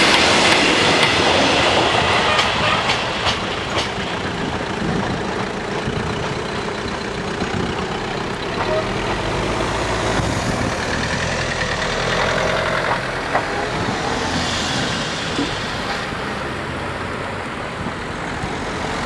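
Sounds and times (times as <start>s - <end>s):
cars driving past: 7.2s - 19.0s.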